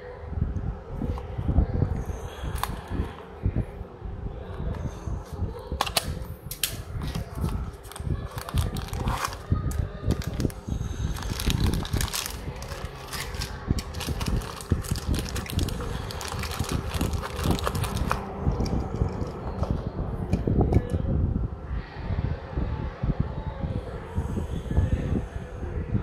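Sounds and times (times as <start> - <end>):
plastic bag crinkling: 7.0 - 19.4.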